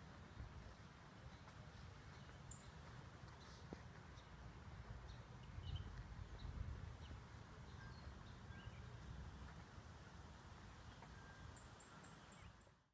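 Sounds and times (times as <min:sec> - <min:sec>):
wind rumble on microphone: 0:04.8 - 0:09.9.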